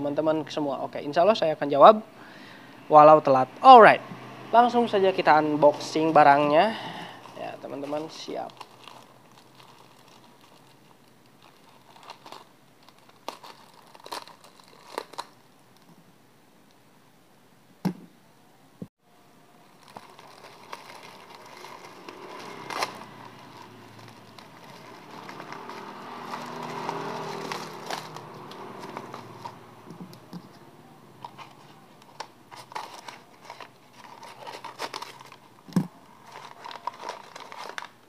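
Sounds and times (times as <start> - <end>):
packaging crinkling and rustling: 5.8 - 15.9, 19.6 - 30.6, 31.2 - 38.0.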